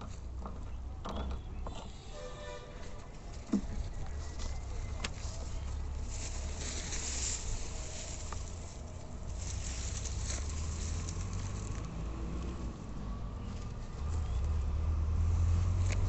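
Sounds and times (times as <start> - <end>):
water plants rustling: 2.2 - 12.8.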